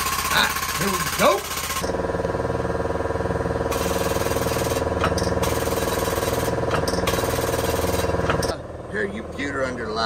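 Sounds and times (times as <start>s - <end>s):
press pump chattering: 0.0s - 2.0s, 3.7s - 8.6s.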